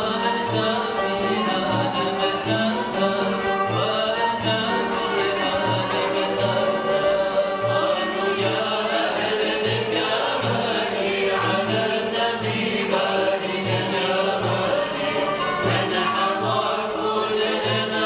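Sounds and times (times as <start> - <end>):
group singing: 0.0 - 18.0
string ensemble playing: 0.0 - 18.0.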